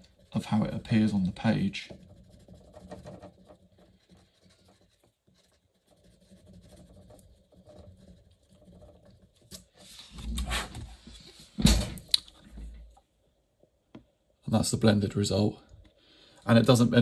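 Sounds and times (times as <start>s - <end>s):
pencil scratching on paper: 0.0s - 11.0s.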